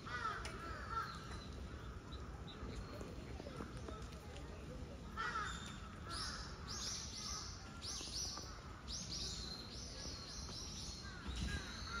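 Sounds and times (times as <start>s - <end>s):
low background noise: 0.0s - 12.0s
birds chirping: 5.1s - 12.0s.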